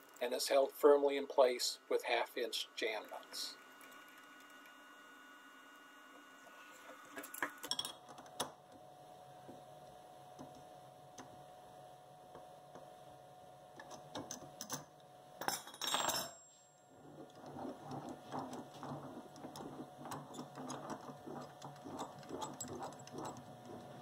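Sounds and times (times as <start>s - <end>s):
wrenches clattering onto wooden table: 15.4s - 16.4s
vise crank clicking and rattling: 17.2s - 24.0s.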